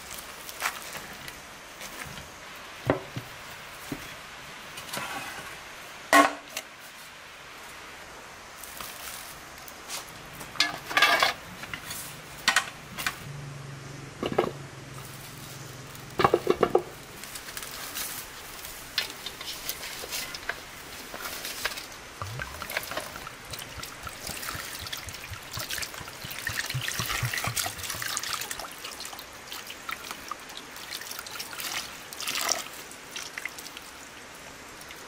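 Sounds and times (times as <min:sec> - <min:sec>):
metal bowls clanking: 0:22.2 - 0:28.6.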